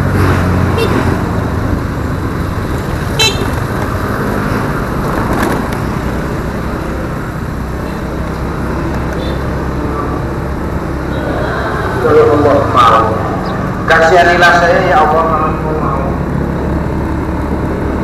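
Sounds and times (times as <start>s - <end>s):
road noise: 0.0s - 18.0s
scooter engine: 0.0s - 18.0s
short high vehicle horn toot: 3.2s - 3.5s.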